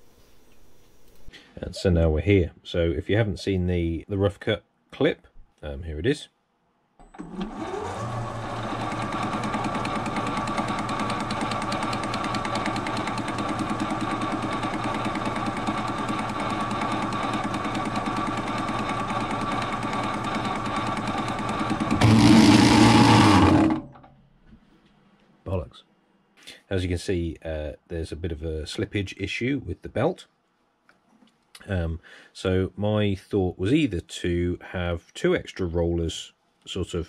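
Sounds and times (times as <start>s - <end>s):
metal lathe whirring and clattering: 7.1s - 23.9s
drive belt slipping: 7.2s - 24.0s.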